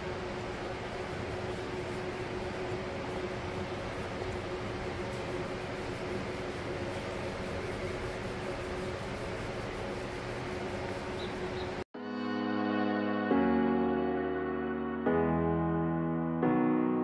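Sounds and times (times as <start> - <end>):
electric fan rushing and humming: 0.0 - 11.9.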